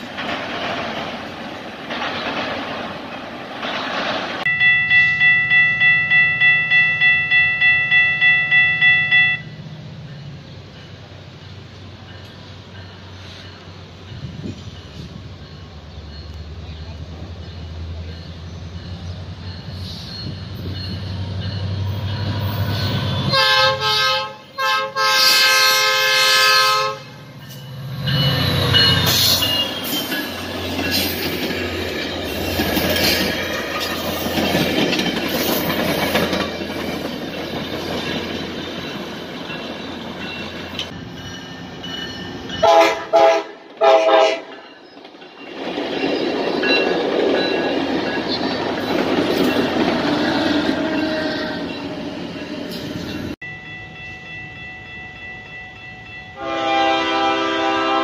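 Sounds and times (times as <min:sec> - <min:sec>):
train wheels on rails: 0:00.0 - 0:58.0
train horn blasts: 0:04.5 - 0:09.6, 0:23.0 - 0:27.3, 0:42.6 - 0:44.5, 0:56.4 - 0:58.0.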